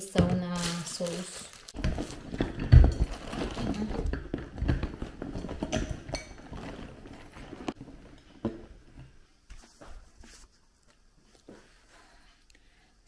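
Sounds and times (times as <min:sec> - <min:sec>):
bag rustling and knocking: 0:01.6 - 0:09.2.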